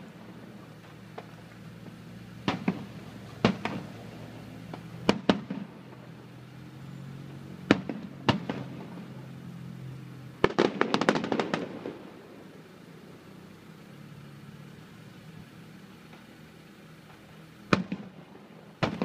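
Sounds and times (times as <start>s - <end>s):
firework shells bursting: 0.0s - 6.2s, 7.7s - 9.0s, 10.4s - 12.6s, 17.0s - 19.0s.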